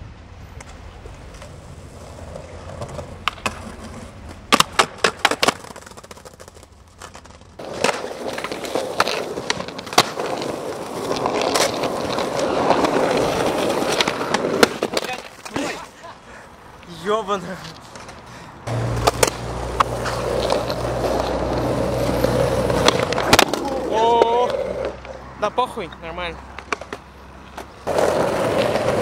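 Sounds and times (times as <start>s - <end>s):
skateboard wheels rolling on pavement: 0.0s - 29.0s
skateboard clacks: 0.6s - 15.8s, 17.7s - 25.2s, 26.5s - 29.0s.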